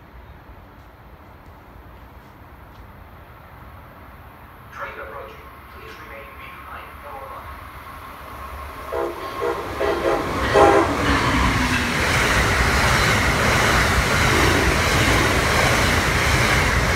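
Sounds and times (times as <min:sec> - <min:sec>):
train passing at speed: 0:00.0 - 0:16.9
train horn blasts: 0:08.9 - 0:11.4.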